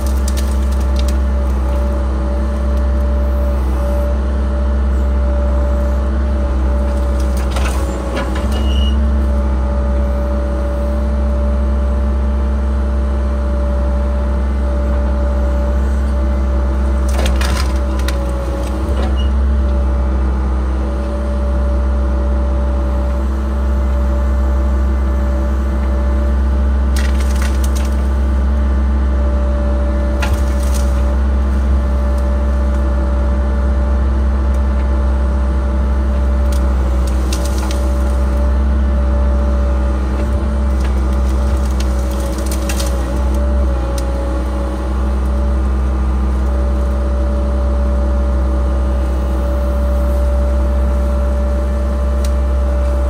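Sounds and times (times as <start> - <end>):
wood and brush cracking: 0.0 - 3.6, 6.7 - 8.9, 16.8 - 19.2, 26.8 - 28.4, 30.0 - 33.0, 36.1 - 38.6, 39.8 - 45.5
diesel engine running: 0.0 - 53.0.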